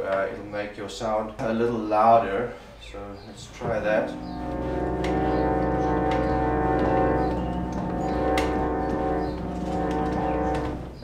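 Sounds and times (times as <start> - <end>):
reed organ held chord: 3.5 - 11.0.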